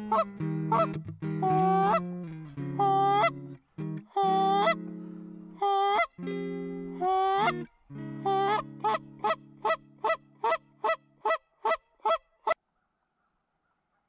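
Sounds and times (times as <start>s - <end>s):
goose honking: 0.0s - 2.1s, 8.2s - 12.2s
sustained music chords: 0.0s - 5.6s, 6.2s - 10.8s.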